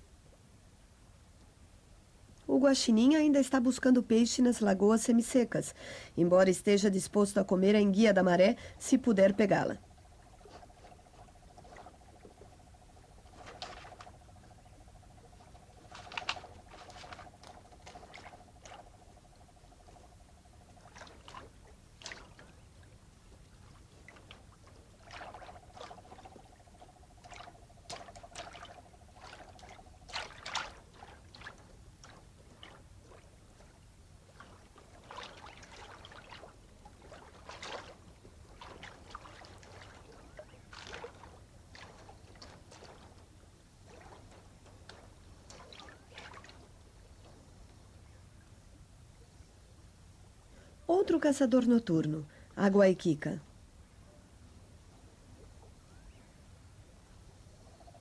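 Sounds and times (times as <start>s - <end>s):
raccoon splashing in water: 7.7s - 47.5s.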